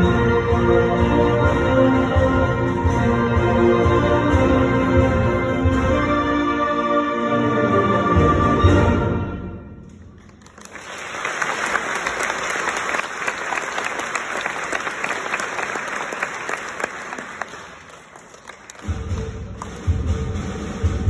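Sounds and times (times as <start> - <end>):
audience applauding: 10.2 - 19.8.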